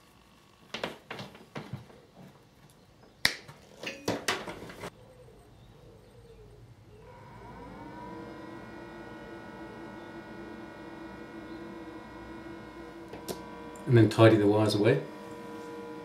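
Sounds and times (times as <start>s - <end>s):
cooling fan whirring: 6.6s - 16.0s.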